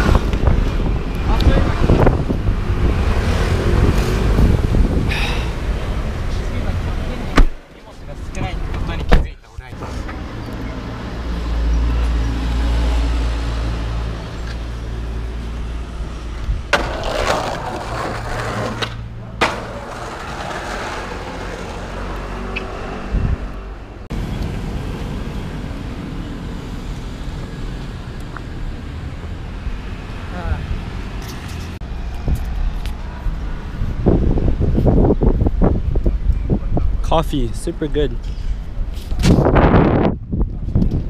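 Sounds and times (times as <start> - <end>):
skateboard wheels rolling on pavement: 0.0 - 9.1, 9.7 - 36.8.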